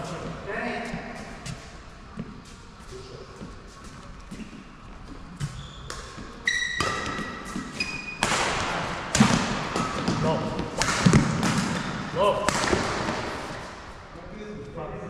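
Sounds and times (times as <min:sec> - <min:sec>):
noisy scuffle: 0:00.0 - 0:14.1
sneaker squeaks: 0:01.0 - 0:08.3, 0:09.7 - 0:10.7
racket hitting shuttlecock: 0:05.8 - 0:13.8.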